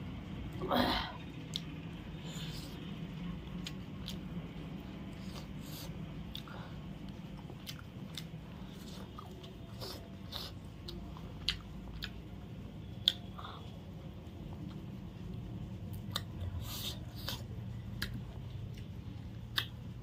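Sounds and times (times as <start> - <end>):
steady low hum: 0.0 - 20.0
chewing and biting: 3.6 - 4.2, 5.1 - 12.2, 12.9 - 13.6, 15.9 - 19.8
wet mouth clicks: 12.9 - 13.7, 15.9 - 17.4, 19.5 - 19.8.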